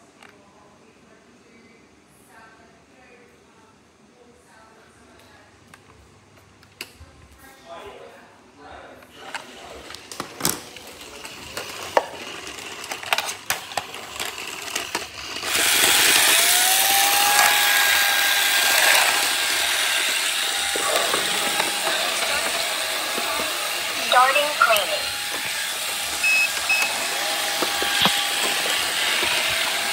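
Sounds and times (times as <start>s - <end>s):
robot vacuum running: 10.8s - 29.9s
motor whine: 15.5s - 24.1s, 25.0s - 29.9s.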